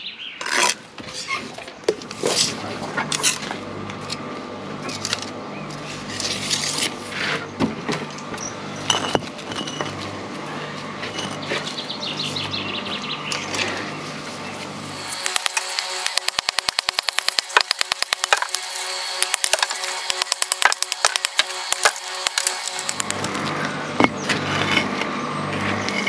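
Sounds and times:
trowel and block scraping and knocking: 0.4 - 3.5, 14.9 - 23.4
low pulsing hum: 2.1 - 26.0.

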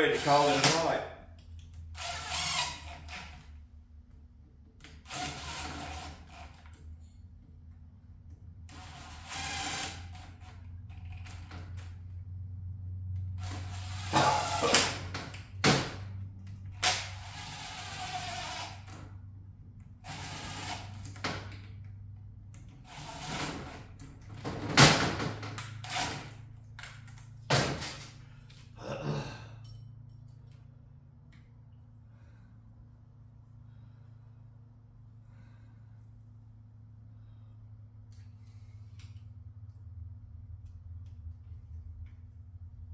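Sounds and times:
cordless drill driving bolts: 0.1 - 1.0, 2.0 - 3.5, 4.9 - 6.8, 8.7 - 11.6, 13.4 - 15.8, 16.8 - 19.1, 20.0 - 21.7, 22.8 - 24.0.

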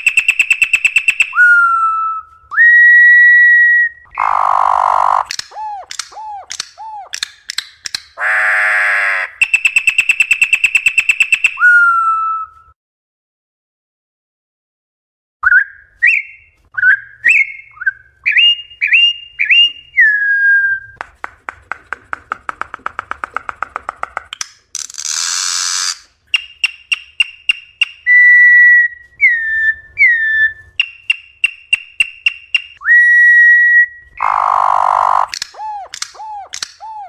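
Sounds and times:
bird whistling song: 0.0 - 8.1, 9.4 - 12.7, 15.4 - 21.0, 25.8 - 37.0
bird dry clicks: 5.2 - 8.2, 21.0 - 25.4, 35.3 - 37.0.

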